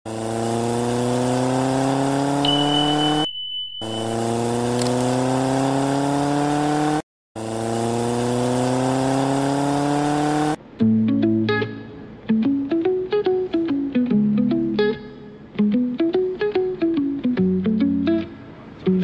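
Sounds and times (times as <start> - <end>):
engine-like hum rising in pitch: 0.1 - 10.6
high beep: 2.4 - 5.3.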